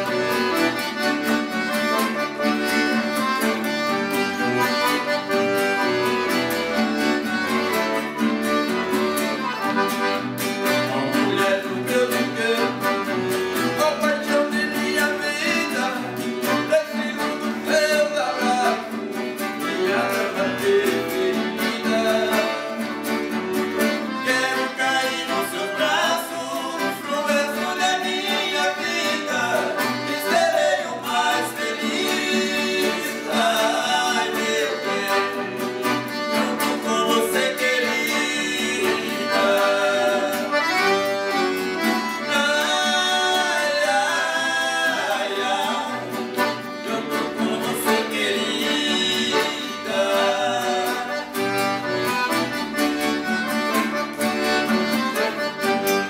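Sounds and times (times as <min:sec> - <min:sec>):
accordion: 0:00.0 - 0:56.0
acoustic guitar: 0:00.0 - 0:56.0
men singing in harmony: 0:10.9 - 0:13.0, 0:13.8 - 0:22.8, 0:24.1 - 0:35.8, 0:36.4 - 0:40.9, 0:42.2 - 0:51.4.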